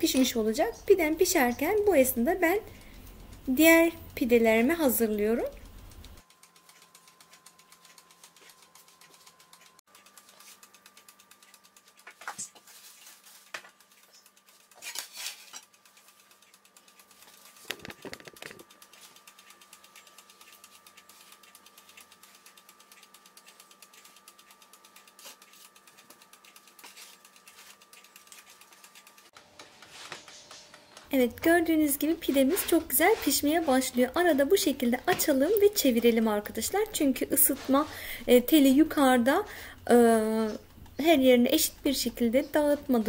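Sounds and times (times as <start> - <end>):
scrape on pizza peel: 14.8 - 15.6
faint steady hum: 30.7 - 43.0.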